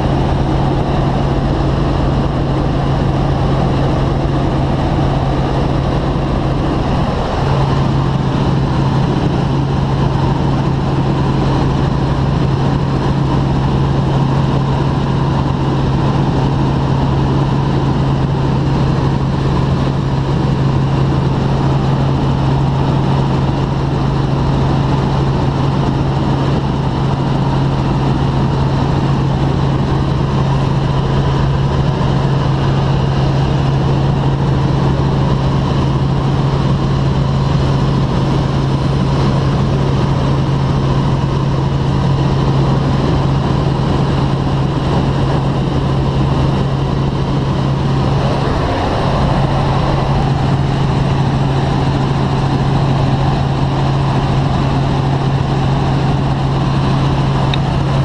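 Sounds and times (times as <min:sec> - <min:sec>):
helicopter engine and rotor hum: 0:00.0 - 0:58.0
rushing noise: 0:45.2 - 0:58.0.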